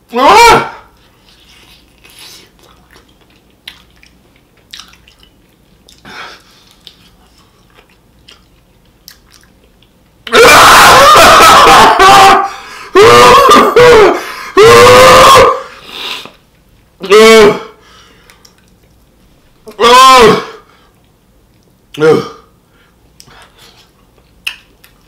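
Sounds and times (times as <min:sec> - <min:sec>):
man yelling: 0:00.1 - 0:00.8, 0:10.3 - 0:15.6, 0:19.7 - 0:20.6, 0:22.0 - 0:22.4
chewing and mouth clicks: 0:01.2 - 0:10.2, 0:18.2 - 0:19.1, 0:23.2 - 0:25.0.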